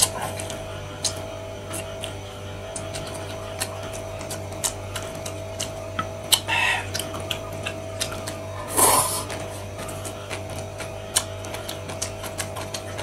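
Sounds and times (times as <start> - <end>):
chewing noodles: 0.0 - 13.0
steady low hum: 0.0 - 13.0
slurp: 8.0 - 10.2.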